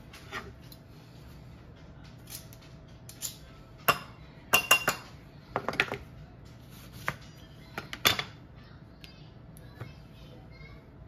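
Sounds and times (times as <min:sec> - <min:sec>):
utensils clinking on glass bowl: 0:03.2 - 0:05.1.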